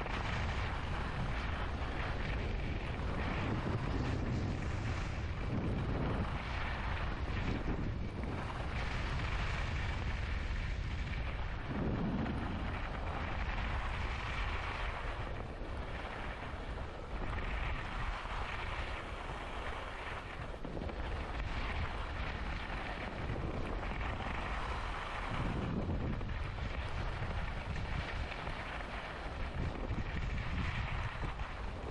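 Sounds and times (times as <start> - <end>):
skis scraping on snow: 0.0 - 2.4, 3.0 - 11.0, 12.6 - 15.2, 20.9 - 31.9
wind buffeting the microphone: 0.0 - 31.9.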